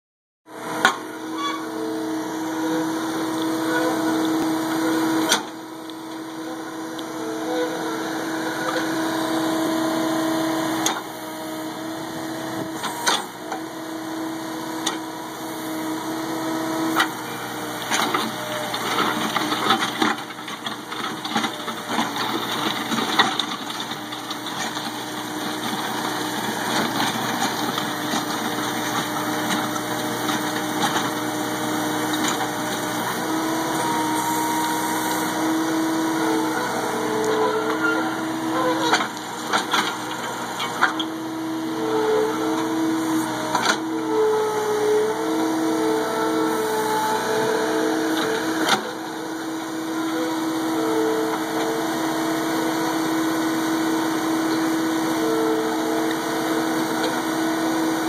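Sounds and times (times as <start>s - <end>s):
loader engine running: 0.5s - 58.0s
auger churning soil and stones: 14.4s - 58.0s.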